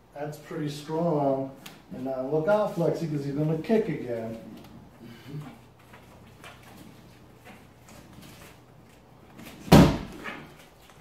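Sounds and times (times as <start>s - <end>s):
bare foot kicking exercise ball: 9.5s - 10.6s.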